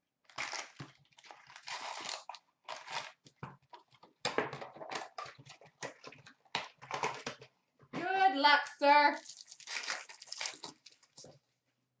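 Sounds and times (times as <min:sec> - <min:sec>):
foil packs crinkling: 0:00.2 - 0:03.2, 0:09.2 - 0:11.3.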